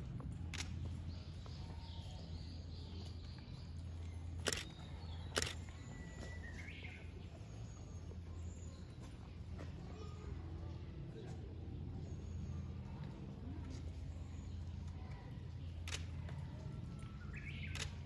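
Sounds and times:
small birds chirping: 0.0s - 18.0s
steady low hum: 0.0s - 18.0s
sharp clicks: 0.5s - 0.9s, 4.4s - 5.9s, 15.8s - 16.4s, 17.4s - 18.0s.

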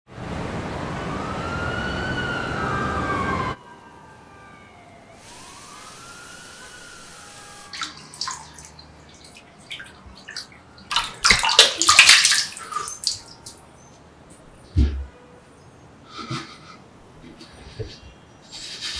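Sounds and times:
distant siren: 0.1s - 11.4s
city traffic noise: 0.1s - 18.9s
emergency siren wailing: 0.2s - 11.2s
hands splashing water: 7.7s - 13.6s
tap water running into sink: 7.7s - 13.6s.

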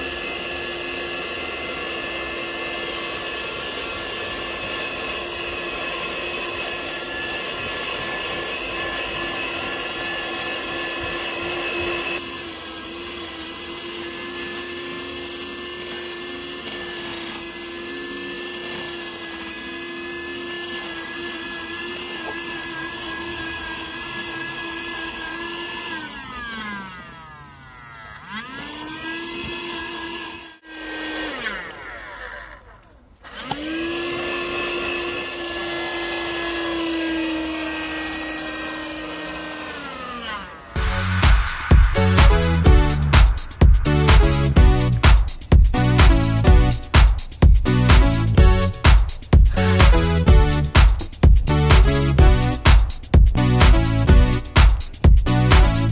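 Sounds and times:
handheld vacuum motor whine: 0.0s - 55.9s
suction hiss: 40.8s - 45.5s.

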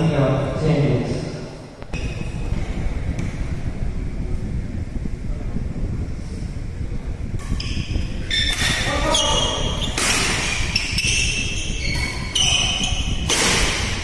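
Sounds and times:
steady low rumble: 1.0s - 14.0s
shoes squeaking on court: 7.5s - 13.9s
racket hitting shuttlecock: 9.9s - 10.7s, 11.9s - 14.0s.

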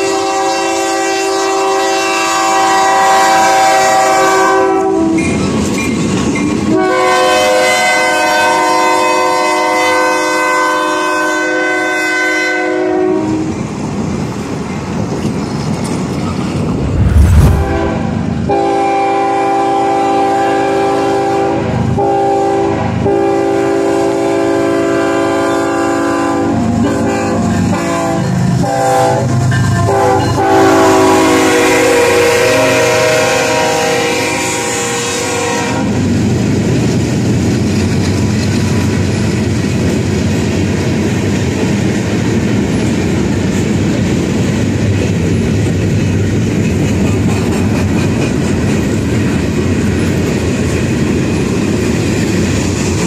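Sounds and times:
locomotive air horns: 0.0s - 5.2s, 29.8s - 36.0s
train rumble: 13.5s - 19.1s, 35.8s - 53.0s
loud thump: 16.7s - 18.1s.

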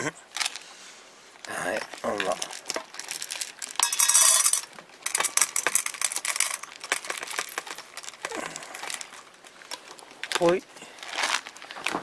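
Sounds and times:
dry cat food pouring: 1.7s - 11.8s
food pieces clinking on metal: 3.6s - 8.3s.

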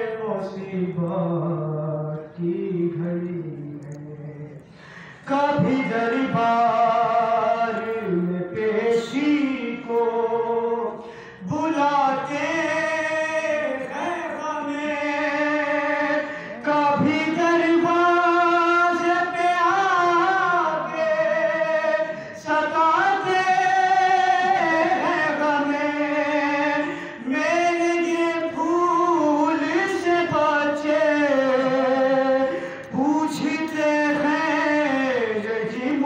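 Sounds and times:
young man singing unaccompanied: 0.0s - 4.6s, 5.2s - 36.0s.

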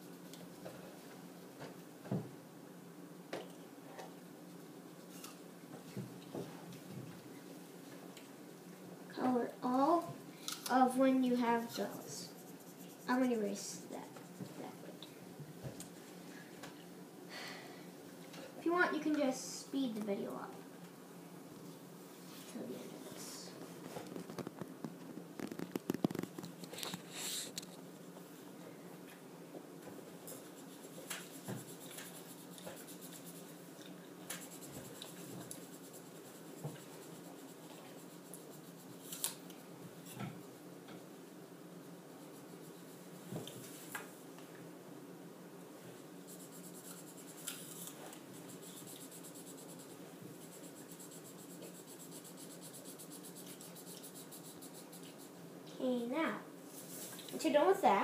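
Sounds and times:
marker scratching on paper: 11.3s - 14.6s, 30.3s - 33.6s, 34.3s - 39.1s, 46.2s - 55.4s.

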